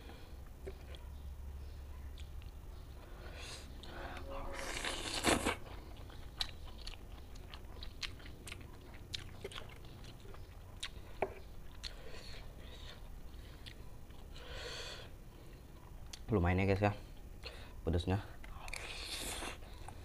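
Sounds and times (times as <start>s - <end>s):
person slurping noodles: 4.6s - 5.6s
chewing with wet mouth smacks: 4.9s - 14.4s.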